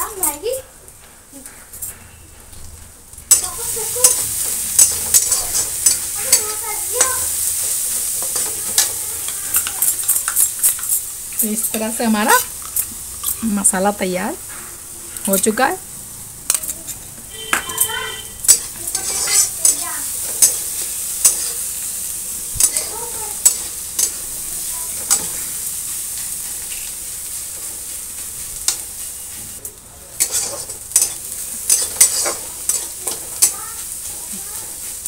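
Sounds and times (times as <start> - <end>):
onions sizzling in hot oil: 0.0 - 1.5, 3.0 - 35.0
metal spatula scraping pan: 3.3 - 11.0, 16.5 - 21.6, 30.2 - 34.9.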